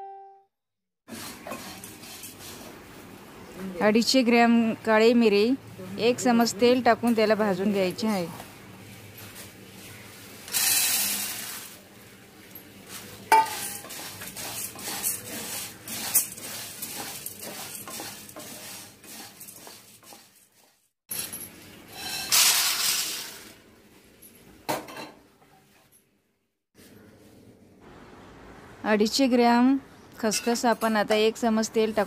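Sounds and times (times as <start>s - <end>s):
spatula scraping peppercorns in pan: 1.1s - 2.9s, 10.4s - 11.8s, 12.8s - 20.9s, 21.9s - 23.4s
peppercorns rattling into pan: 10.5s - 11.8s, 22.2s - 23.4s.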